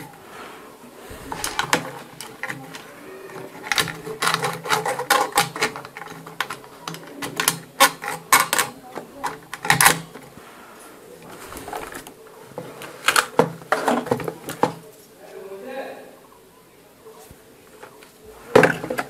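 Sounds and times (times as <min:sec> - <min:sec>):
cpu cooler plastic clicks and rattles: 0:01.3 - 0:10.3, 0:12.8 - 0:14.8.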